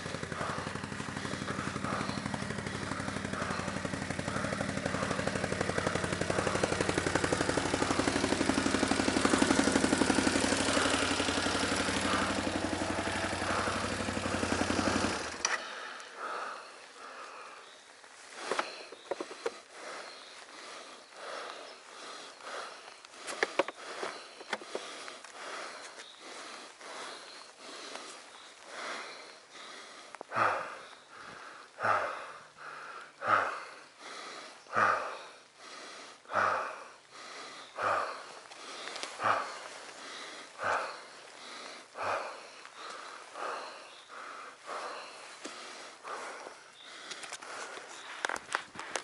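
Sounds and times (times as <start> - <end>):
person breathing hard: 0.0 - 49.0.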